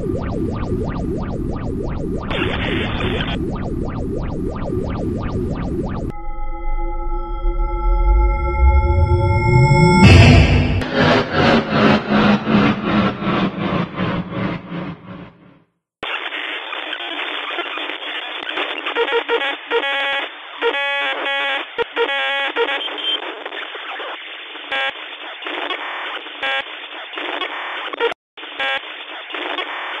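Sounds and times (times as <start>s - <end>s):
pulsing buzzy tones: 0.0s - 15.3s
narrow-band radio static: 2.2s - 6.1s.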